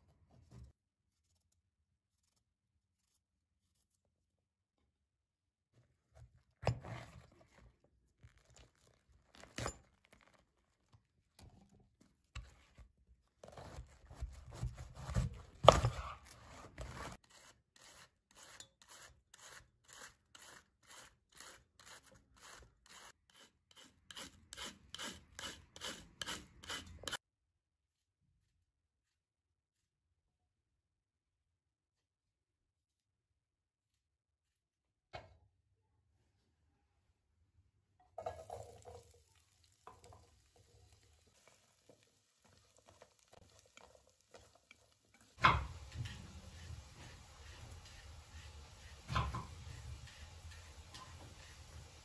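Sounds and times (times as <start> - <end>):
knife cutting cabbage: 13.4 - 27.2.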